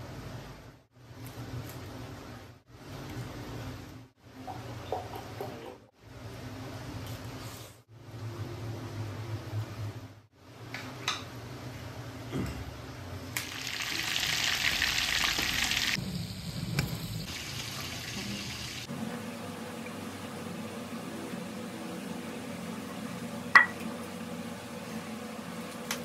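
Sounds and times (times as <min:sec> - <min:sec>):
chicken frying in hot oil: 0:13.4 - 0:26.0.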